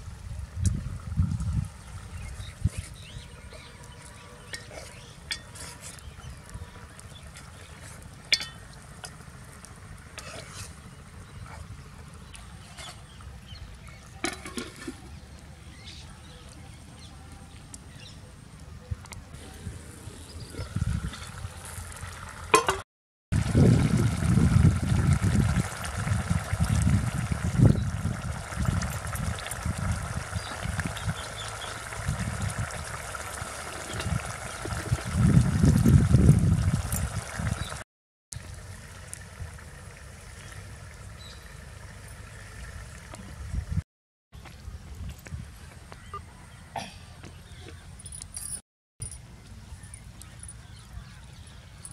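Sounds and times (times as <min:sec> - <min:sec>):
wind buffeting microphone: 0:00.1 - 0:03.7, 0:18.9 - 0:21.6, 0:23.4 - 0:37.8, 0:43.2 - 0:43.8
steel lid clanking on pot: 0:08.3 - 0:08.7
curry bubbling in a pot: 0:23.4 - 0:37.8.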